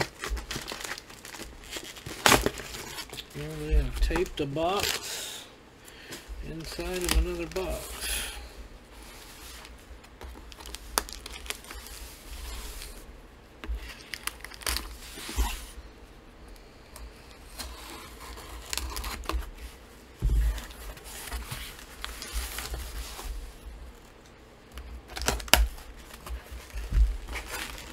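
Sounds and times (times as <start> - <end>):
packing tape tearing: 0.0 - 5.2, 6.6 - 8.0, 10.3 - 13.0, 13.8 - 15.8, 17.5 - 19.5, 25.0 - 27.9
cardboard scraping and rustling: 17.5 - 23.5.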